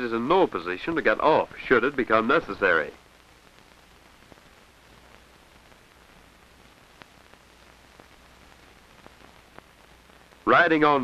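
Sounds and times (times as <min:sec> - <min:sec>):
film soundtrack hiss: 0:00.0 - 0:11.0
clicks and pops: 0:06.7 - 0:09.7.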